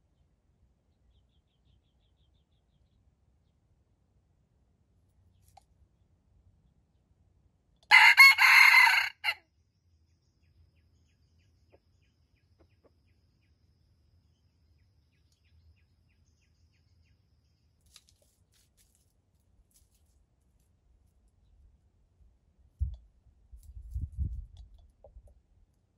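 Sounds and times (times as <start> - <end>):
rooster crowing: 7.9 - 9.4.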